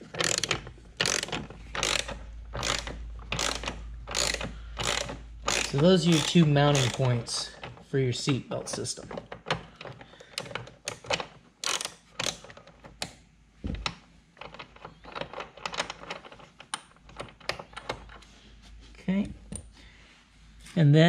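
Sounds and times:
hand ratchet clicking: 0:00.0 - 0:07.7, 0:10.3 - 0:12.6.

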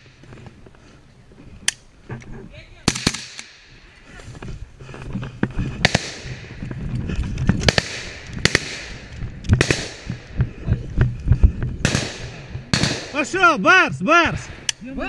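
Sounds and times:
gunshots echoing: 0:02.8 - 0:03.8, 0:05.8 - 0:06.6, 0:07.6 - 0:10.4, 0:11.8 - 0:13.3
rustling through undergrowth: 0:03.5 - 0:12.8.

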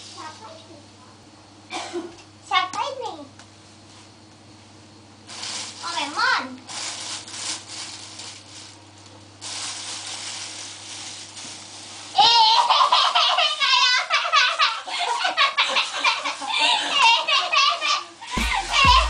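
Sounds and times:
high-pitched laughing and squealing: 0:12.2 - 0:19.0.

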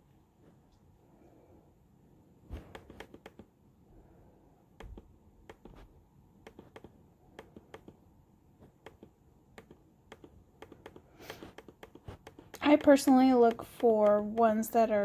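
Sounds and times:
clicks from scrolling a web page: 0:02.7 - 0:03.5, 0:04.8 - 0:05.8, 0:06.4 - 0:08.0, 0:08.7 - 0:14.5.

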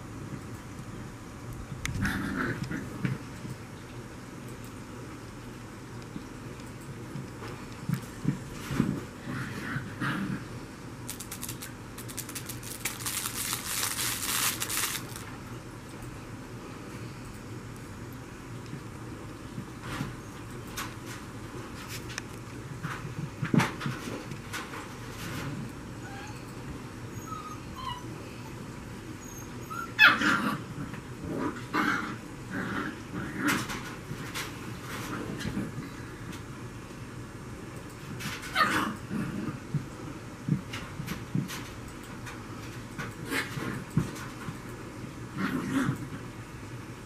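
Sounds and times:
puppy chewing crinkly toy: 0:11.1 - 0:15.3
puppy whimpering and crying: 0:26.0 - 0:26.5, 0:27.1 - 0:28.6, 0:29.2 - 0:30.2.

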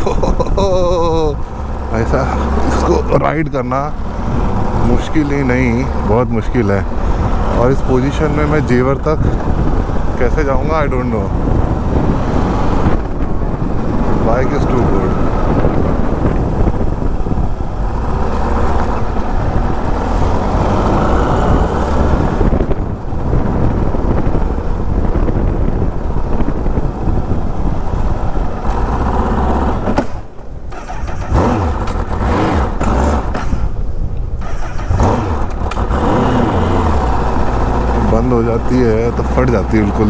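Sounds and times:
motorcycle engine running: 0:00.6 - 0:40.0.

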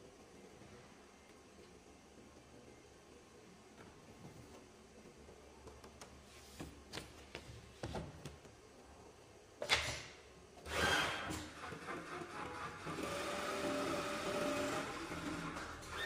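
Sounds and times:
sewing machine sewing: 0:10.7 - 0:16.0.

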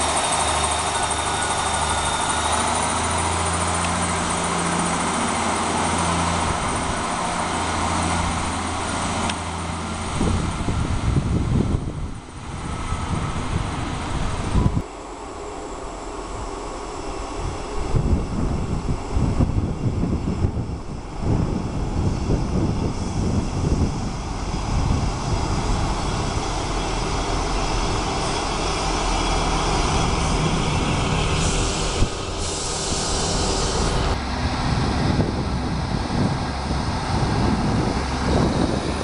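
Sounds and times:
diesel train engine: 0:00.0 - 0:39.0
train wheels on rails: 0:00.0 - 0:39.0
wind rumbling on microphone: 0:04.6 - 0:39.0
high hiss: 0:27.6 - 0:34.7.

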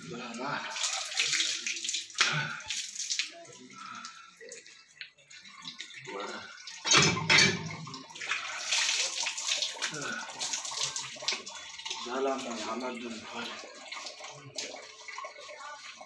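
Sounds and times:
water gushing from pump: 0:00.0 - 0:04.7, 0:05.6 - 0:16.0
water splashing from hand pump: 0:06.4 - 0:16.0.

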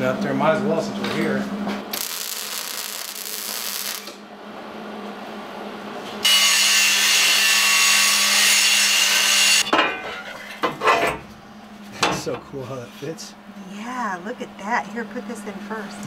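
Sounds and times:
welder hissing crackle: 0:01.9 - 0:04.2
angle grinder grinding steel: 0:06.2 - 0:09.7.

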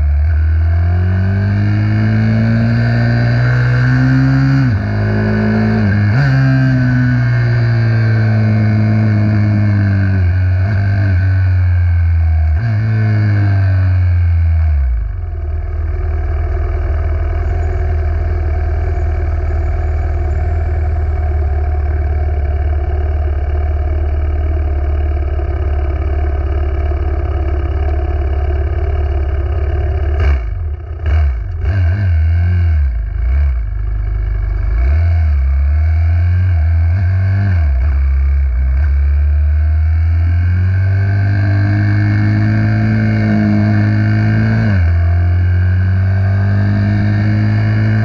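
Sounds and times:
minibike engine running: 0:15.0 - 0:31.6.

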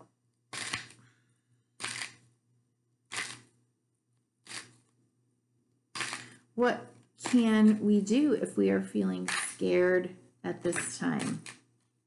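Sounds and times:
cards being shuffled: 0:00.6 - 0:01.0, 0:01.8 - 0:02.3, 0:04.4 - 0:04.9, 0:10.8 - 0:11.7.

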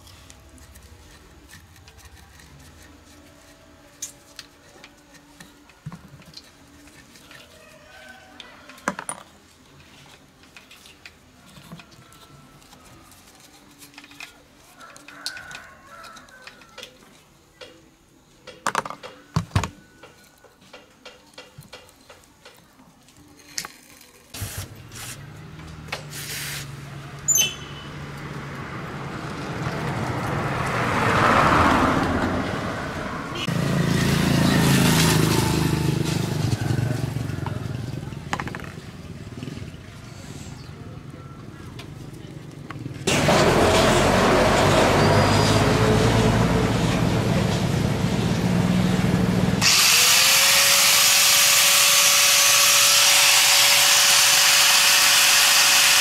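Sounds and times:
metal tools clicking and tapping: 0:20.0 - 0:22.7.

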